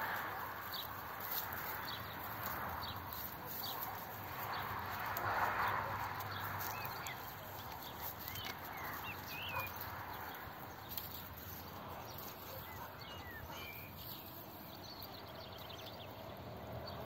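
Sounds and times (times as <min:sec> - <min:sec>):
small birds chirping: 0:00.0 - 0:17.0
soft ticks: 0:00.1 - 0:12.7.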